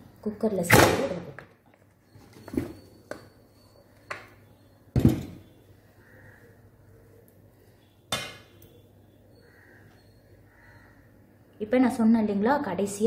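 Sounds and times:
metal cookware clanking: 0:08.1 - 0:08.6.

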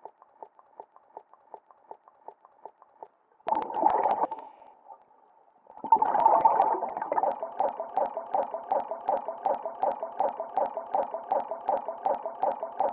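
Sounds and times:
underwater regulator bubbles: 0:03.5 - 0:04.4, 0:05.8 - 0:12.9.

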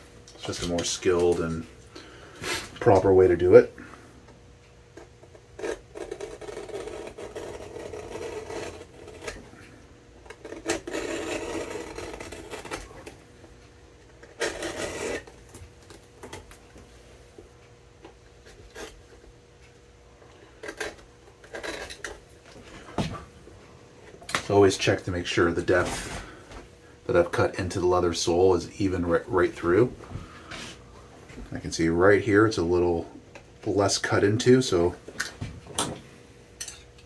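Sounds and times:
knife cutting leather: 0:05.3 - 0:09.5, 0:10.3 - 0:13.2, 0:14.2 - 0:15.3, 0:20.6 - 0:22.2.

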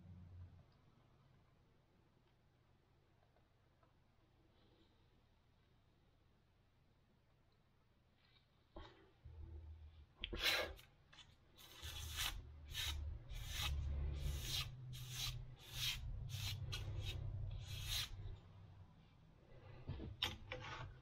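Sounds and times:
fingers brushing arrow feathers: 0:11.6 - 0:18.4.

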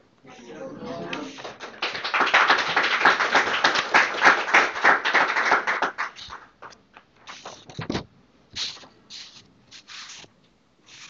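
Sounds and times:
audience applauding: 0:00.8 - 0:06.8.

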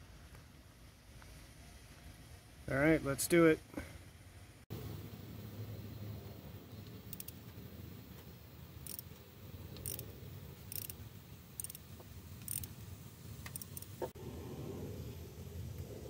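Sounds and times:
socket ratchet clicking: 0:07.0 - 0:07.4, 0:08.8 - 0:11.0, 0:11.6 - 0:12.8, 0:13.4 - 0:14.0.

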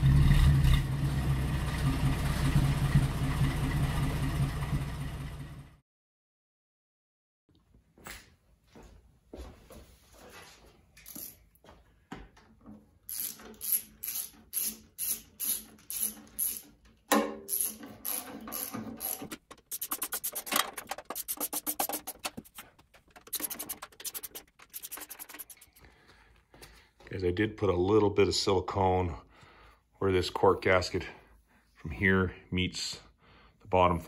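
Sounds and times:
hand ratchet clicking: 0:11.0 - 0:11.4, 0:13.1 - 0:16.8, 0:17.5 - 0:25.8.

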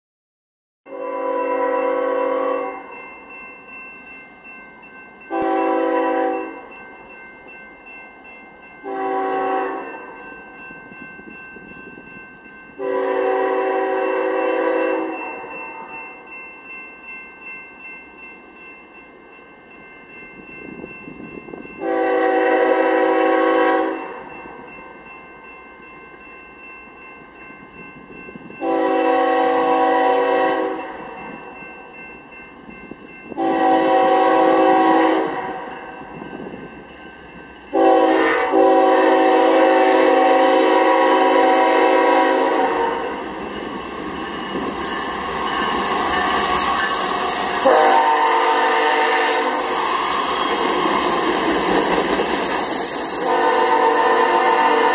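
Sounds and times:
locomotive air horn blasts: 0:00.9 - 0:02.9, 0:05.3 - 0:06.6, 0:08.8 - 0:10.0, 0:12.8 - 0:16.0, 0:21.8 - 0:24.2, 0:28.6 - 0:30.8, 0:33.4 - 0:35.8, 0:37.7 - 0:43.2, 0:47.2 - 0:50.2, 0:53.1 - 0:54.9
crossing bells ringing: 0:00.9 - 0:54.9
train wheels rushing past: 0:32.9 - 0:54.9.

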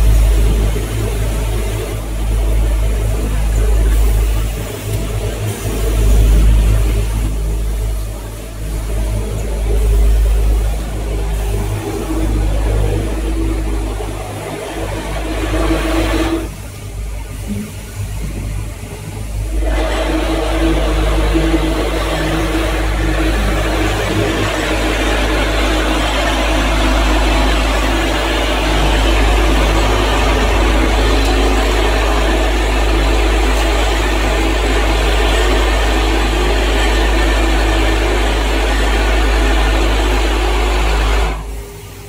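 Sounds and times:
bowl feeder humming: 0:19.4 - 0:41.3.

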